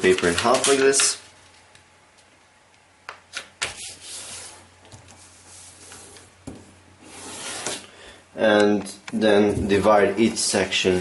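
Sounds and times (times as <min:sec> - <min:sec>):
paper rustling and sliding on table: 0:03.6 - 0:06.3, 0:07.0 - 0:07.9.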